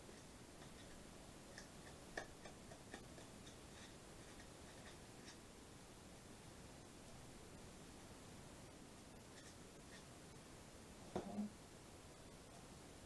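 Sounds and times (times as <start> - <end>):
faint clicks and taps: 0.1 - 5.4.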